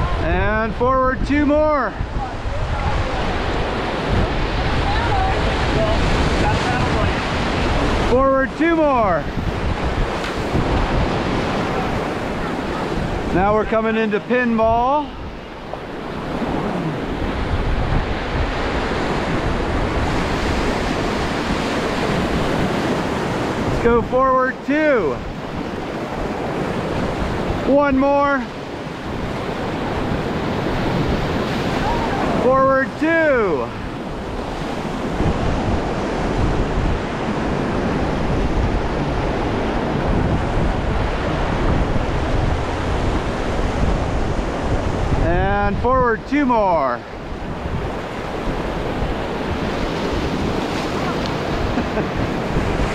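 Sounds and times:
wind buffeting microphone: 0.0 - 52.9
river rapids rushing: 1.5 - 52.9.

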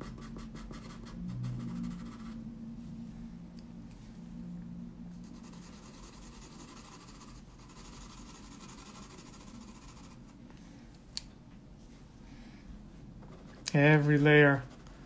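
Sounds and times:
pencil scratching on paper: 0.0 - 2.4, 5.2 - 10.4, 13.2 - 15.0.

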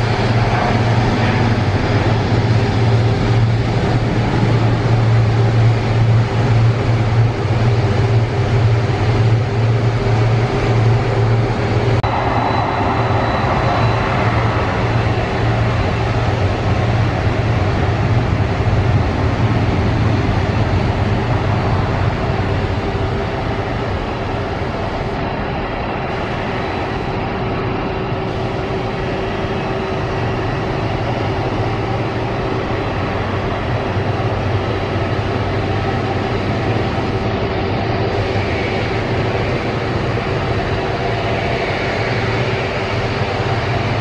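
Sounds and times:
jet engines roaring: 0.0 - 44.0
faint high whine: 9.6 - 44.0.

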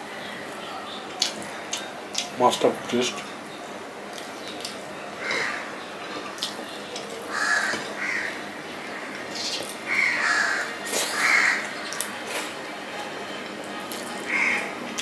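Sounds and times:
crows cawing: 5.2 - 5.8, 7.3 - 9.3, 9.9 - 11.7, 14.3 - 14.8.

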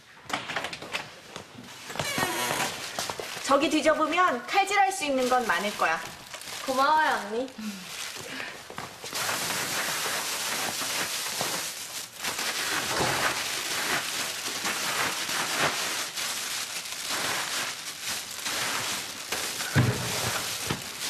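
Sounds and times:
plastic bags rustling: 1.7 - 21.0.

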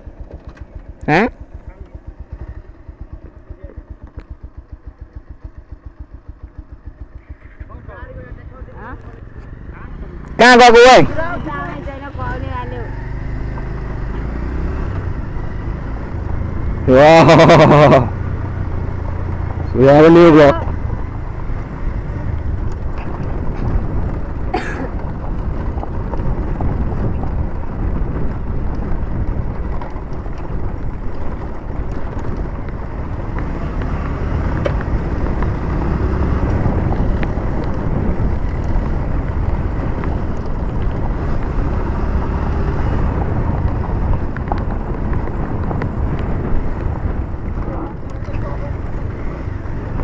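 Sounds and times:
tyres on gravel: 0.0 - 4.4, 15.2 - 50.0
motorcycle engine running: 0.0 - 50.0
wind buffeting microphone: 10.8 - 50.0.

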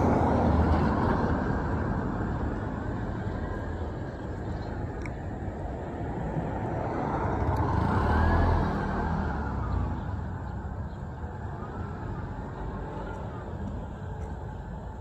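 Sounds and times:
road noise: 0.0 - 15.0
motor tricycle driving past: 7.0 - 10.7.

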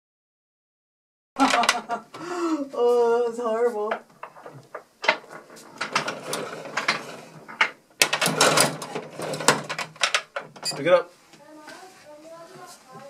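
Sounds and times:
table hockey rods sliding: 4.3 - 9.8.

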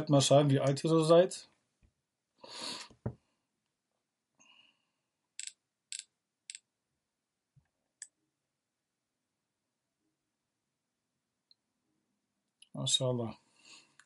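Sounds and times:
computer mouse clicks: 5.4 - 6.6.

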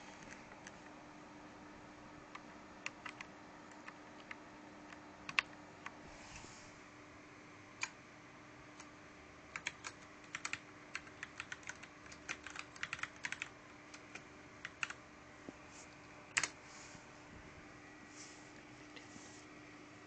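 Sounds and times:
mechanical keyboard typing: 2.3 - 6.0, 9.5 - 15.0, 16.3 - 16.6.

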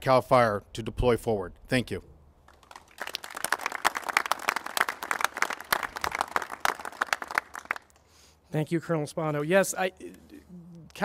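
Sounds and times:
crowd applauding: 2.5 - 8.0.

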